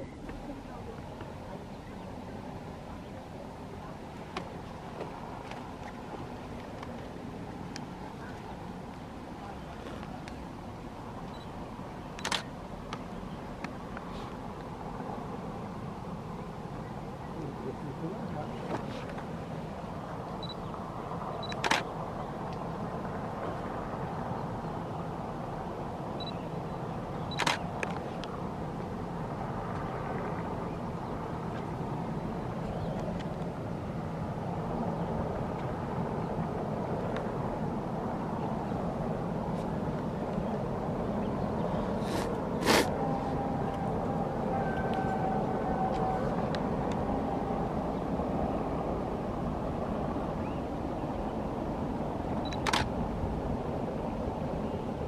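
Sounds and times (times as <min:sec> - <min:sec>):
camera beeps: 0:11.3 - 0:11.5, 0:12.2 - 0:12.5, 0:20.4 - 0:20.6, 0:21.4 - 0:21.8, 0:26.2 - 0:26.4, 0:27.3 - 0:27.6, 0:52.4 - 0:52.9
camera shutter click: 0:12.2 - 0:12.5, 0:27.3 - 0:27.6.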